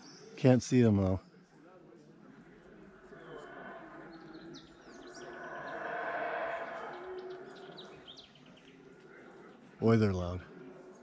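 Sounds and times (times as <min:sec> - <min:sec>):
birds chirping: 0:03.0 - 0:11.0
howler monkeys roaring: 0:03.1 - 0:08.2.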